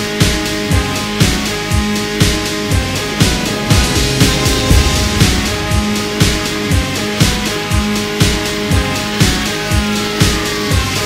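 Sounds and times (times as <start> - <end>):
guitar and bass notes: 0.7 - 9.1
drum beat: 2.2 - 8.0.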